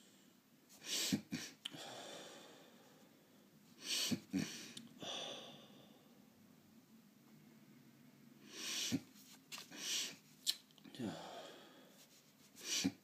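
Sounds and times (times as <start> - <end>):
person sniffling: 0.8 - 2.6, 3.8 - 6.0, 8.5 - 10.2, 12.6 - 13.0.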